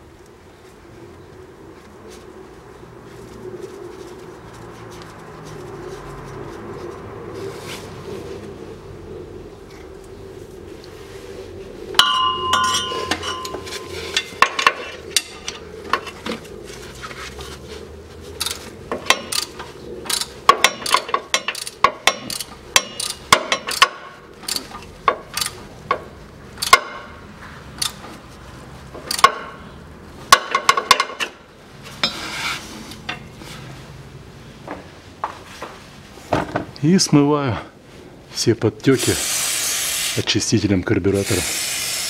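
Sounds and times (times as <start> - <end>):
hand tool clicking on metal: 18.4 - 25.6, 27.8 - 28.0, 29.1 - 29.4.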